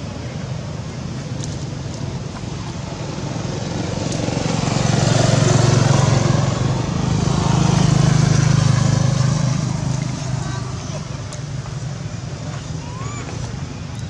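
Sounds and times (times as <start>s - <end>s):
vehicle passing: 2.8s - 13.4s.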